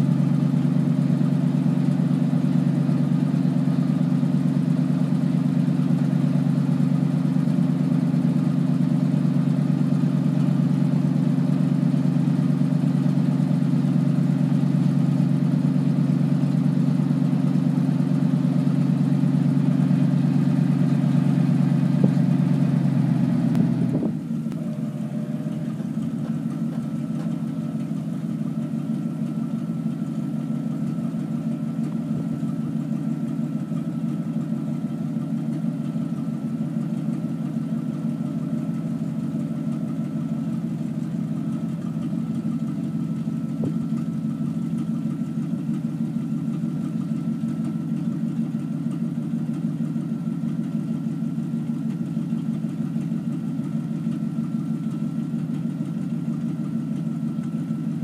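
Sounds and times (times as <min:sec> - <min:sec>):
truck engine idling: 0:00.0 - 0:58.0.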